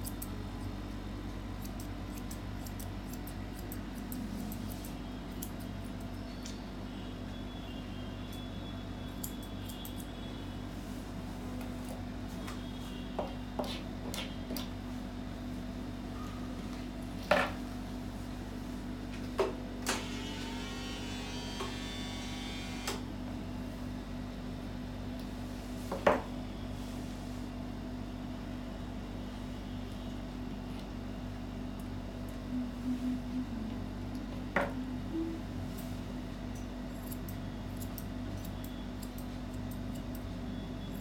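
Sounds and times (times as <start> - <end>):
grooming tools clicking and knocking: 0.0 - 0.7, 1.6 - 5.6
low hum: 32.2 - 36.0.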